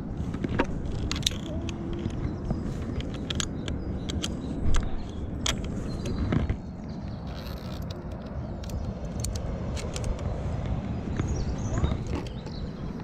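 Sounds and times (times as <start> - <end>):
steady low rumble: 0.0 - 13.0
carabiners clinking on steel cable: 0.8 - 6.1.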